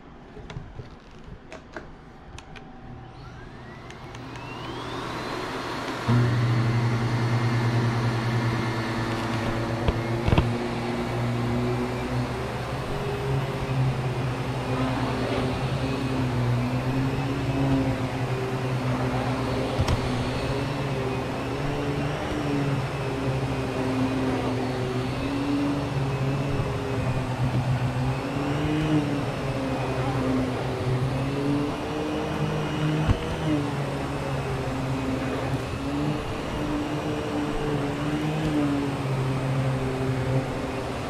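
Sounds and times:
vacuum cleaner running: 2.1 - 41.0
click: 3.8 - 4.6.

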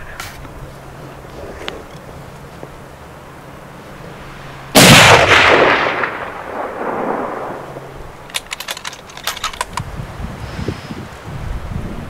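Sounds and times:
rifle shot echoing: 4.8 - 8.5
sharp clicks: 8.2 - 9.9.

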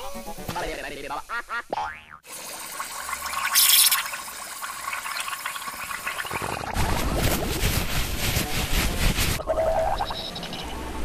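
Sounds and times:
cartoon water splashing and bubbling: 1.7 - 7.6.

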